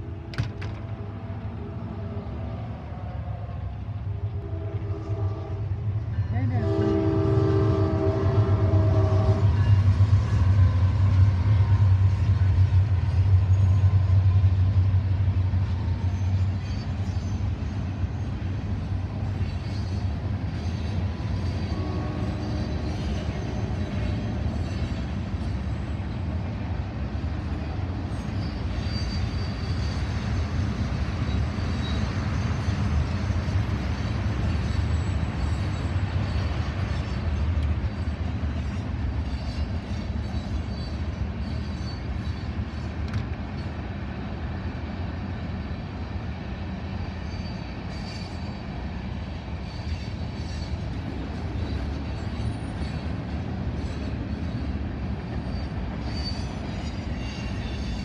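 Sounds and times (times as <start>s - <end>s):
train wheels rumbling on rail: 0.0s - 58.0s
high-pitched wheel squeals: 28.1s - 30.3s, 47.2s - 48.8s, 51.6s - 58.0s.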